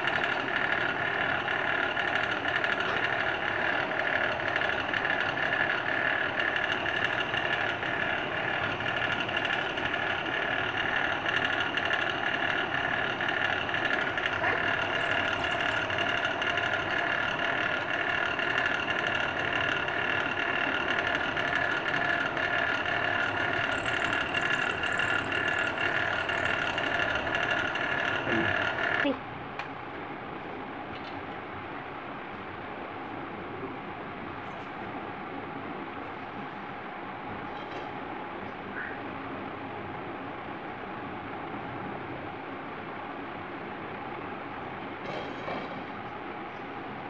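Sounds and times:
drill press motor whining: 0:00.0 - 0:29.7.

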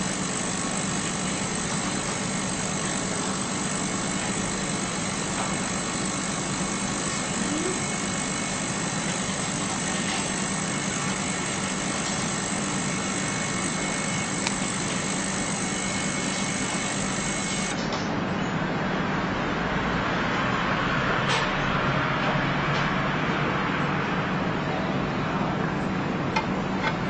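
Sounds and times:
ultrasonic cleaner buzzing: 0:00.0 - 0:17.8.

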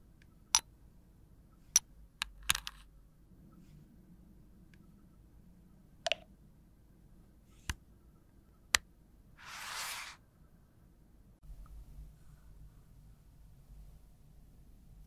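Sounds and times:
brief rushing scrape: 0:09.4 - 0:10.2.

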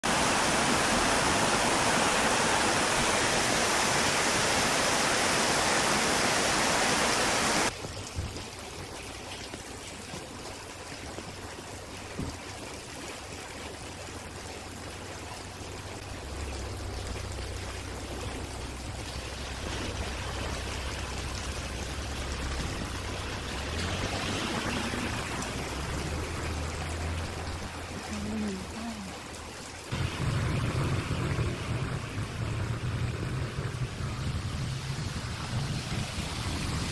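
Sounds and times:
heavy rain pouring: 0:00.0 - 0:36.9
low steady hum: 0:14.5 - 0:23.9.

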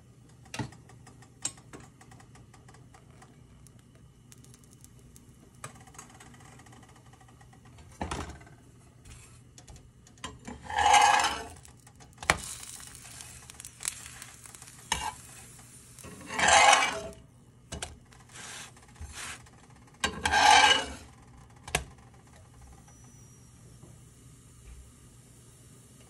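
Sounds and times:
spatula scraping cast-iron skillet: 0:10.4 - 0:17.2, 0:20.0 - 0:21.0.

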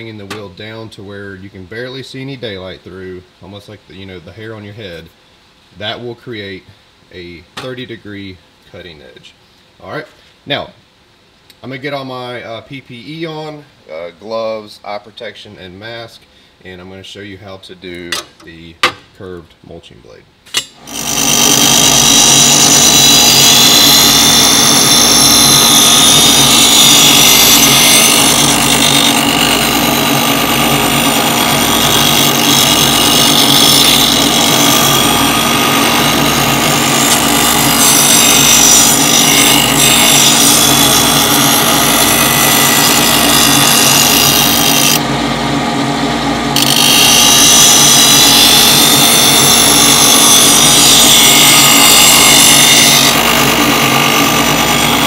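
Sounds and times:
grinding wheel on metal blade: 0:20.6 - 0:45.0, 0:46.6 - 0:55.0
motor hum: 0:20.8 - 0:55.0.

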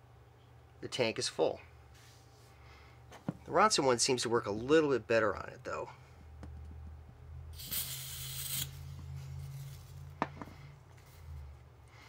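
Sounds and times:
steady low hum: 0:00.0 - 0:12.0
gas hissing from nozzle: 0:07.6 - 0:08.9.

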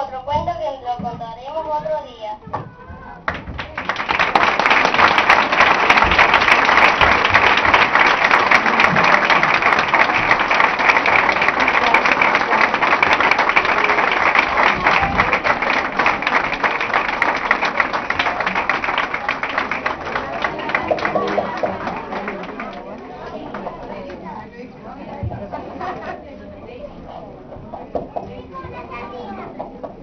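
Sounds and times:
audience applauding: 0:03.2 - 0:24.2.

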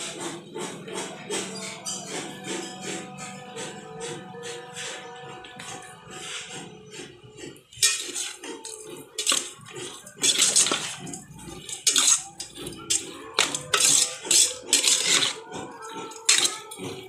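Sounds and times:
metal spoon scraping pot: 0:05.0 - 0:17.0.

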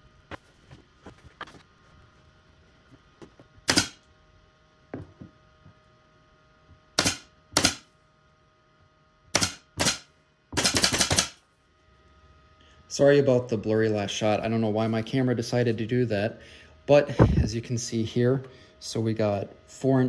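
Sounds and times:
pin nailer firing: 0:03.6 - 0:04.0, 0:07.0 - 0:07.9, 0:09.3 - 0:11.4.

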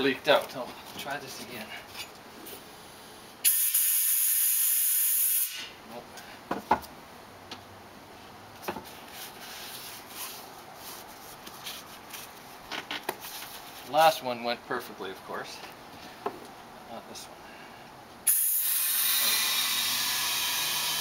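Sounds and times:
compressed air hissing: 0:03.4 - 0:05.7, 0:18.3 - 0:20.9.

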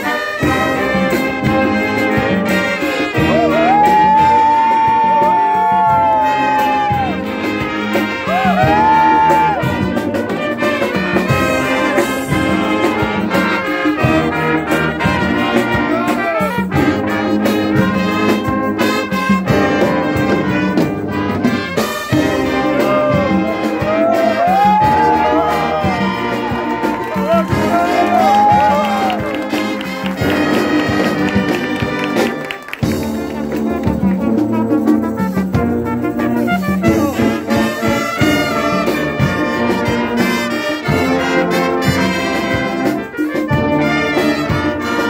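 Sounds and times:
brass instruments playing: 0:00.0 - 0:45.0
bass drum beating: 0:22.1 - 0:40.2.

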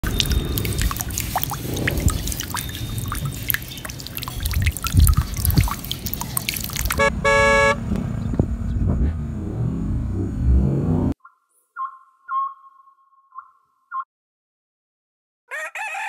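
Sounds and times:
small drips and splashes: 0:00.0 - 0:07.1
water pouring into a pool: 0:00.0 - 0:07.1
horn: 0:07.0 - 0:07.8.

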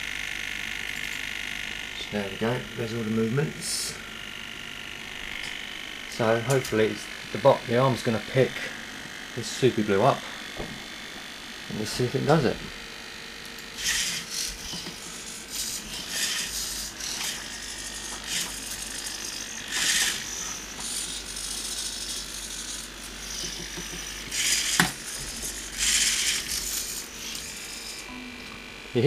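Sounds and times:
servos whirring: 0:00.6 - 0:28.8.

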